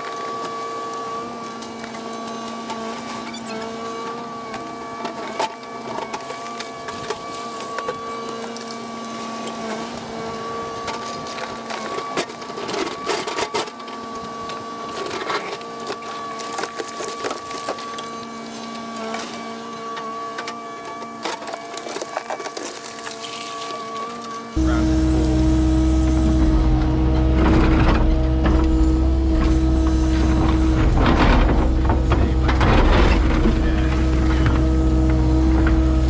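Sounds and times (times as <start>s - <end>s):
excavator mechanical whine: 0.0s - 36.0s
knocks and crunches of concrete: 14.9s - 19.4s, 20.4s - 24.4s.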